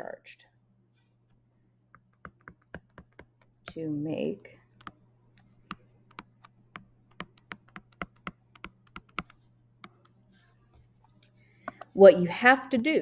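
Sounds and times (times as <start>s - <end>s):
stylus clicking on tablet screen: 2.0s - 3.8s, 4.7s - 11.9s.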